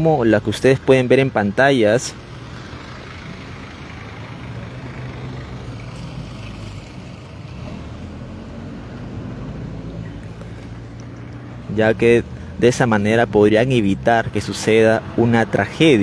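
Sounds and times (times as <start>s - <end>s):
traffic noise: 0.0s - 16.0s
vehicle engine running: 2.2s - 12.7s.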